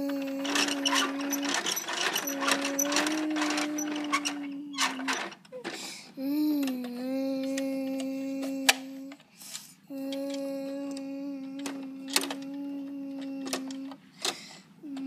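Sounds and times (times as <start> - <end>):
child humming low note: 0.0 - 9.2, 9.8 - 14.0, 14.8 - 15.0
plastic toy clicks: 11.6 - 12.5.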